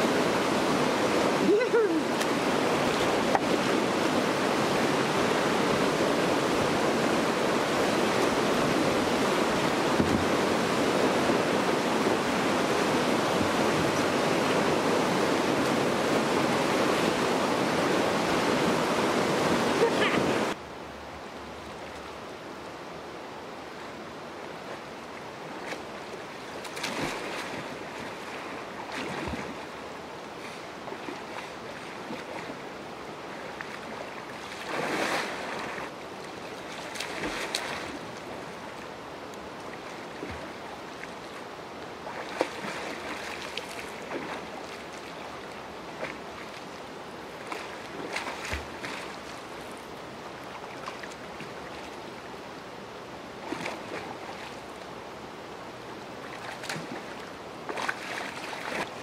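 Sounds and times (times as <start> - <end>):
kayak paddle splashes: 0.0 - 20.6, 25.6 - 29.8, 30.4 - 32.6, 33.3 - 38.4, 42.0 - 49.8, 53.4 - 54.7, 56.2 - 59.0
water lapping: 0.0 - 20.6, 25.5 - 38.9, 39.5 - 52.4, 53.3 - 55.0, 56.1 - 59.0
wind on microphone: 0.0 - 20.6.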